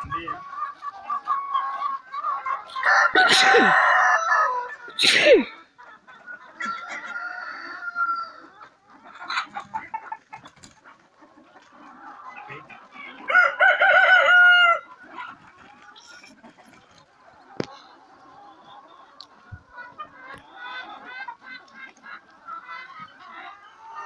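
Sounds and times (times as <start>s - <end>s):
chickens clucking: 0.0s - 24.0s
rooster crowing: 2.8s - 4.8s, 6.8s - 8.4s, 13.3s - 14.9s.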